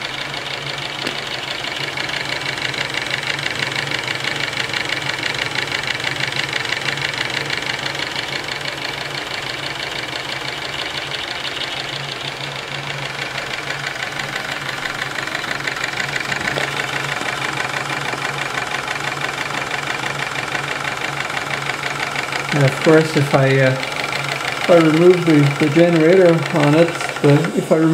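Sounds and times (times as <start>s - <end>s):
steam engine running fast: 0.0s - 27.9s.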